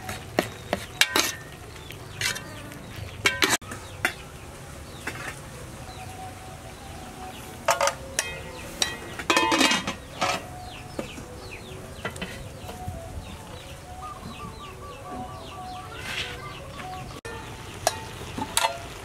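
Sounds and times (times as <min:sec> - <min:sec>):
metal cookware clanking: 0:00.0 - 0:04.2, 0:07.7 - 0:11.2, 0:12.0 - 0:12.8, 0:17.3 - 0:19.0
small birds chirping: 0:00.0 - 0:19.0.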